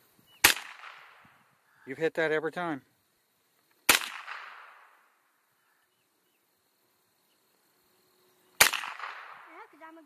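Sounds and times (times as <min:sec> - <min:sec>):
faint chirps: 0:00.0 - 0:00.5, 0:01.5 - 0:03.8, 0:05.3 - 0:08.6
rifle shot echo: 0:00.4 - 0:01.3, 0:03.9 - 0:05.1, 0:08.6 - 0:09.5.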